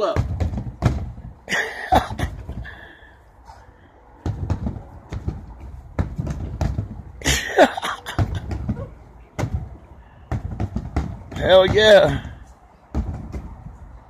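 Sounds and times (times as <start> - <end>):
kick on punching bag: 0.0 - 1.3, 4.2 - 7.4, 8.0 - 13.8
punches thudding on punching bag: 0.0 - 2.8, 4.2 - 13.8.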